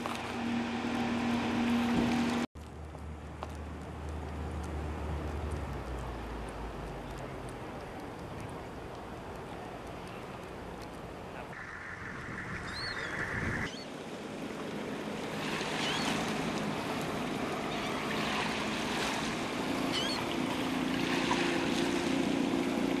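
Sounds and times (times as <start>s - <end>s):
boat motor humming: 0.0s - 2.5s, 4.6s - 23.0s
water lapping: 4.3s - 23.0s
wind on microphone: 11.5s - 13.8s.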